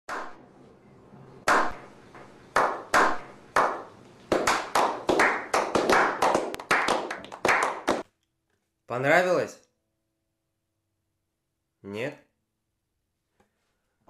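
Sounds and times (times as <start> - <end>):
hand claps with room echo: 0.1 - 0.4, 1.5 - 8.1.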